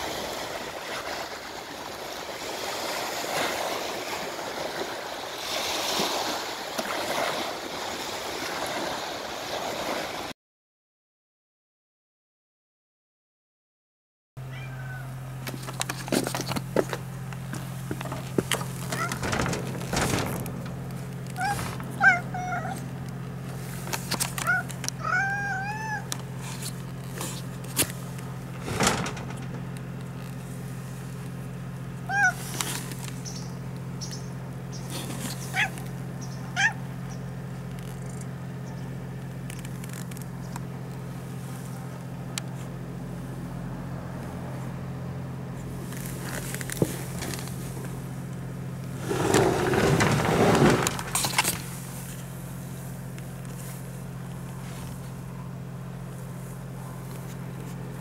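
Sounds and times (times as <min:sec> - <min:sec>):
cat meowing: 0:14.5 - 0:15.2, 0:19.0 - 0:19.2, 0:21.4 - 0:22.8, 0:24.4 - 0:26.1, 0:32.1 - 0:32.5, 0:36.6 - 0:36.8
steady low hum: 0:14.9 - 0:49.1.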